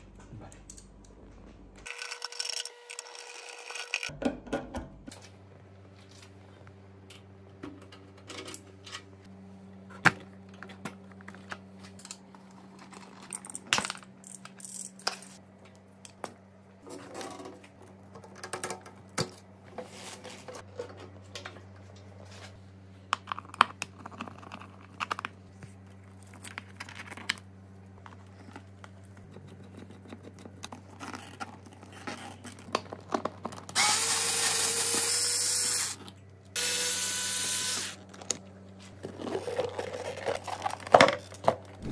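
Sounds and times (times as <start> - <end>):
power tool running: 33.8 - 36.0, 36.6 - 38.0.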